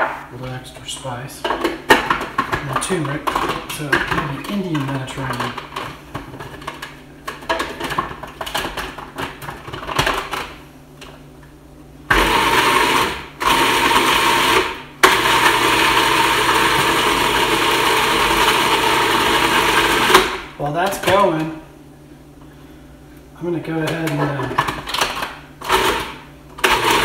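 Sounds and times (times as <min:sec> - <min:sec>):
food processor motor running: 0:12.1 - 0:20.6, 0:24.0 - 0:27.0.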